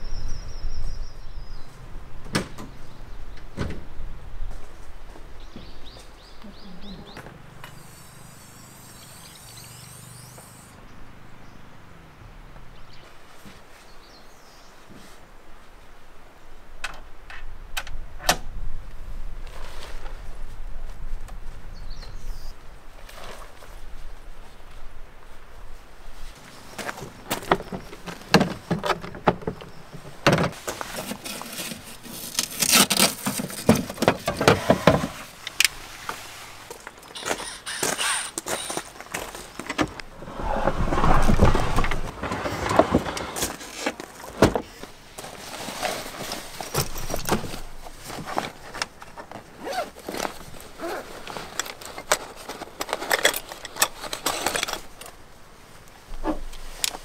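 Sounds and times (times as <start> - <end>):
drawer sliding out: 39.8 - 44.5
metal tools clinking: 51.4 - 55.2.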